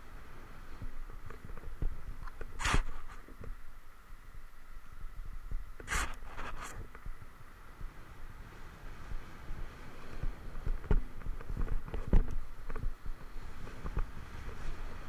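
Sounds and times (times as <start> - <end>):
wind rumble on microphone: 0.0 - 15.0
skis scraping across snow: 0.2 - 3.4, 5.8 - 6.9, 13.1 - 15.0.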